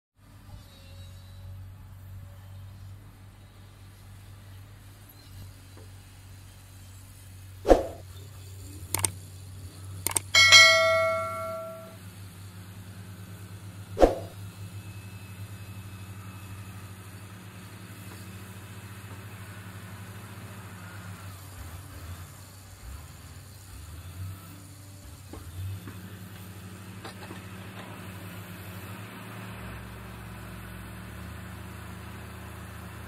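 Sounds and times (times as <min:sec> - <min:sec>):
diesel engines humming: 0:00.3 - 0:33.0
sharp clicks: 0:09.0 - 0:09.2, 0:10.1 - 0:10.4
loud bell ding: 0:10.1 - 0:12.0.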